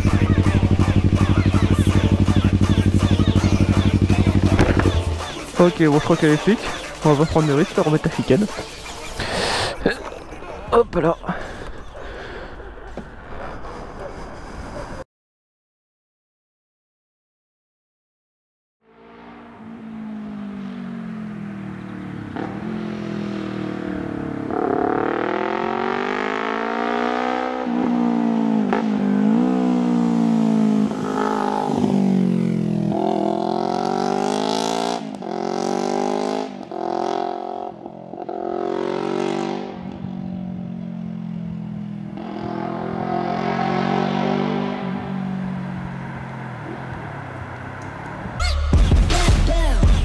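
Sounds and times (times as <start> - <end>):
motorcycle revving through gears: 0.0 - 5.2, 19.0 - 48.4.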